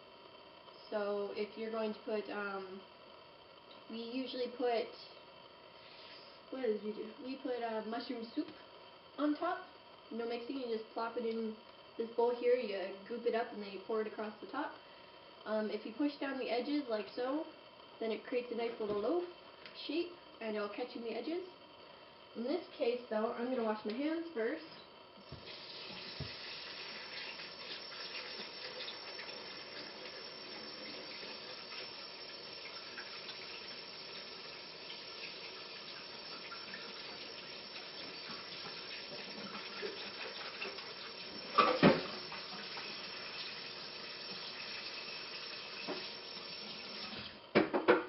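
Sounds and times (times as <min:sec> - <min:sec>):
tap running: 0:25.2 - 0:32.0, 0:34.9 - 0:43.6, 0:45.6 - 0:48.0.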